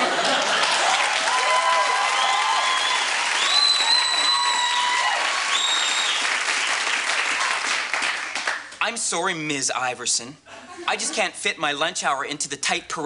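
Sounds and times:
audience applauding: 0.0 - 8.8
high held whistles: 2.1 - 4.9, 5.5 - 6.3.

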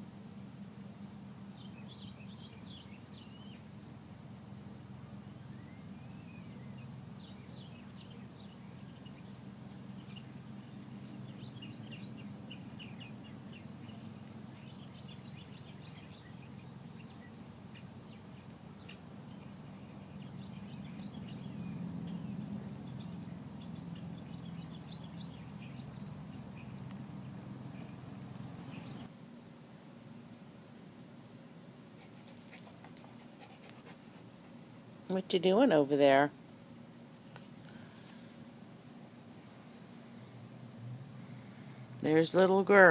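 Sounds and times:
low mechanical hum: 0.0 - 42.9
small birds chirping: 1.4 - 3.7, 5.1 - 29.1.

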